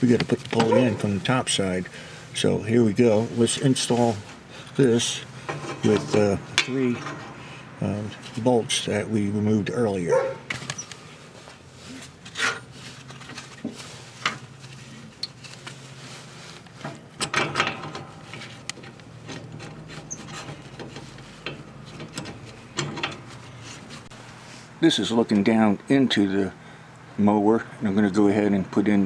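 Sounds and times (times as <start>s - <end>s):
metal parts clattering: 5.4s - 7.4s
metal parts clicking and knocking: 17.2s - 23.3s.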